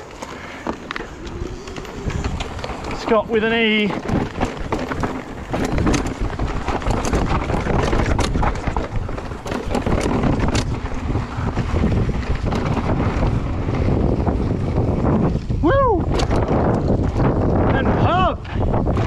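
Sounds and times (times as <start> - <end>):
bike rattling: 0.0 - 19.0
tyres rolling on rocky dirt: 0.0 - 19.0
wind rushing over microphone: 0.0 - 19.0.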